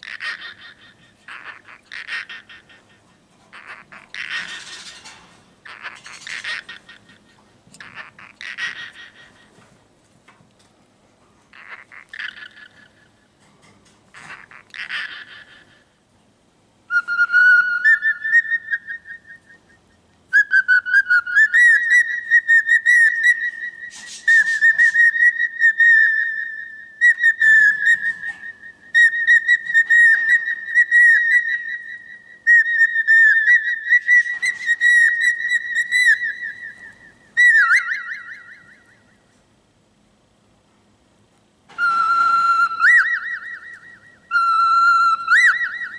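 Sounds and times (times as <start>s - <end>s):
cockatiel whistling: 16.9s - 39.0s, 41.7s - 45.9s.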